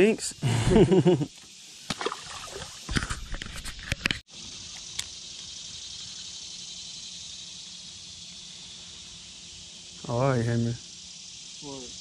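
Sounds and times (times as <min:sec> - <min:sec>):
high outdoor hiss: 0:00.0 - 0:12.0.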